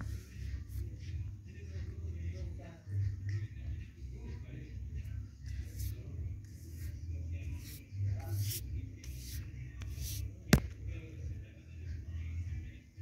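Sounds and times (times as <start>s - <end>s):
hand rubbing paper poster: 5.4s - 10.7s.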